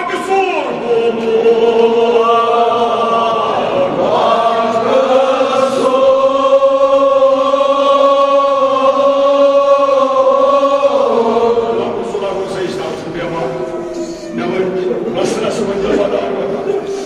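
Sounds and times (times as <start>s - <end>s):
men chanting together: 0.6s - 13.6s.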